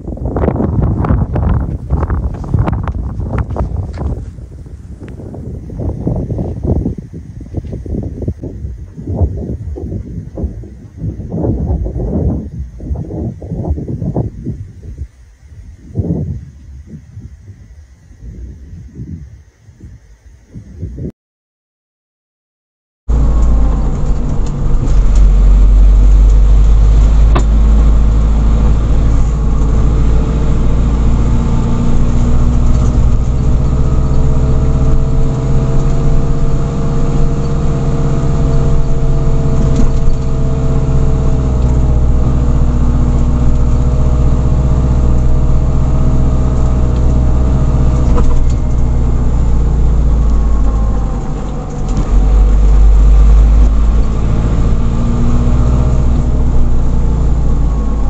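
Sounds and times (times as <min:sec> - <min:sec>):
vehicle engine drone: 0:00.0 - 0:19.2, 0:23.1 - 0:58.0
road noise rumble: 0:00.0 - 0:21.1, 0:23.1 - 0:58.0.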